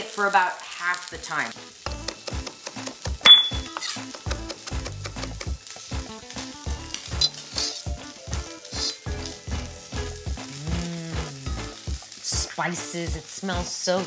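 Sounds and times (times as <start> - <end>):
fish sizzling in skillet: 0.0 - 14.0
background music with beat: 1.6 - 12.5.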